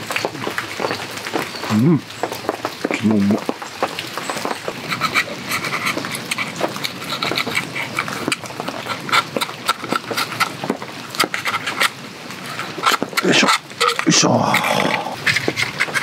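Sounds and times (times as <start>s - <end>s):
knife scraping shell: 4.2s - 16.0s.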